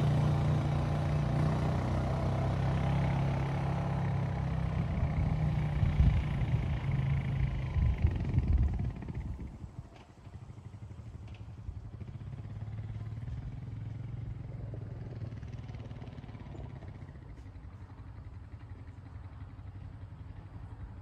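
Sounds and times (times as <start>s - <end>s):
engine idling: 4.9s - 21.0s.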